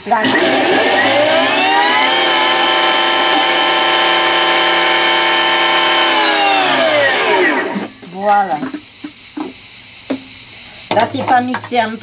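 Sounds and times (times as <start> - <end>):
food processor motor whine: 0.0 - 8.0.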